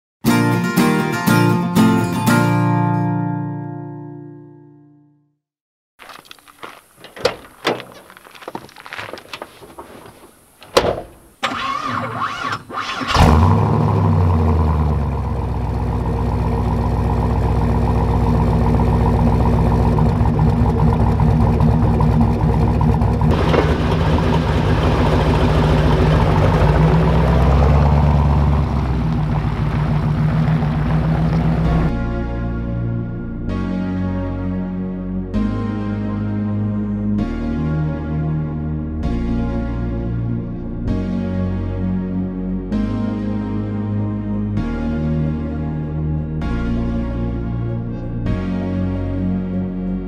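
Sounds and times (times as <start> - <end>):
knocks and clicks: 6.1 - 9.6, 10.6 - 11.3
engine cranking and idling: 6.1 - 31.9.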